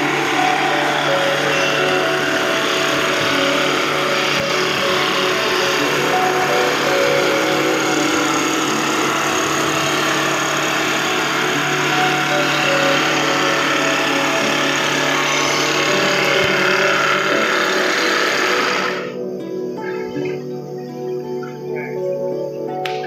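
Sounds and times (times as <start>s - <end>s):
hiss of wood cutting: 0.0s - 19.2s
wood-rounding machine hum: 0.0s - 20.3s.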